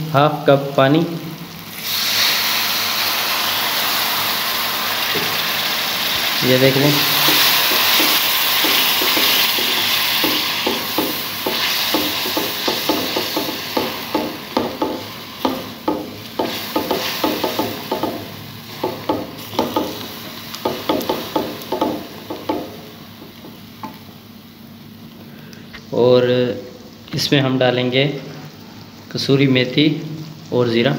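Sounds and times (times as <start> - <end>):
spices sizzling in oil: 0.9 - 25.2.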